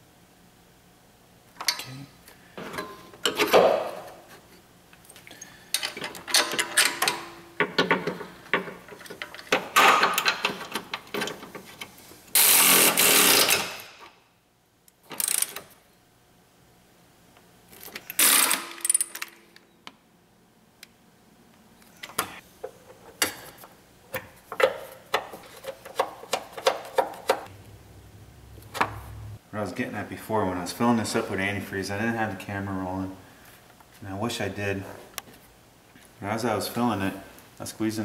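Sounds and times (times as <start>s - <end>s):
ratchet wrench clicking: 15.2s - 15.6s.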